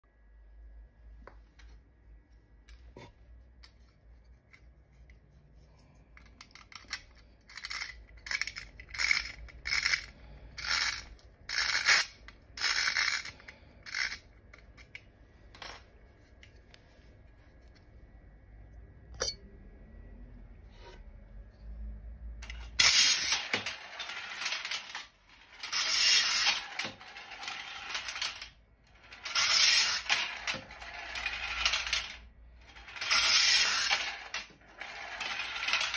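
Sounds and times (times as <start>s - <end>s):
clockwork toy ratcheting clicks: 6.5s - 14.2s, 32.8s - 35.9s
toy spring motor whirring: 6.6s - 14.3s, 22.4s - 35.9s.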